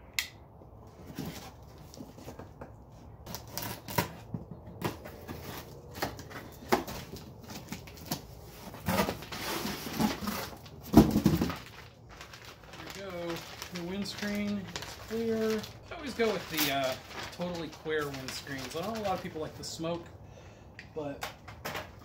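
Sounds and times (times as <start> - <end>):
knife cutting tape and cardboard: 3.2 - 7.1
cardboard scraping and ripping: 3.2 - 19.4
plastic bag crinkling: 9.1 - 19.9.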